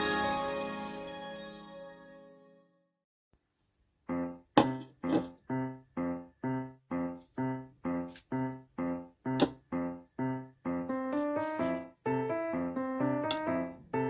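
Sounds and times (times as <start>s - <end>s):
keyboard music: 0.0s - 2.9s, 5.5s - 14.0s.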